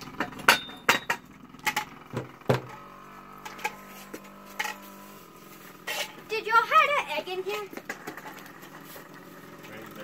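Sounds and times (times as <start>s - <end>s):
dirt bike engine running: 0.0s - 10.0s.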